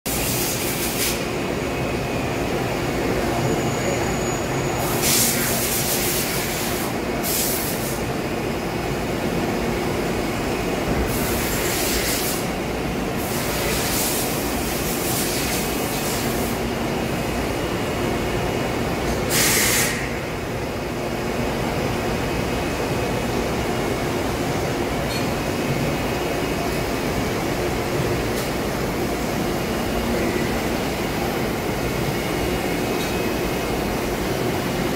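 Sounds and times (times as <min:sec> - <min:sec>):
machinery hum: 0:00.1 - 0:34.9
short hissing bursts: 0:19.3 - 0:20.1.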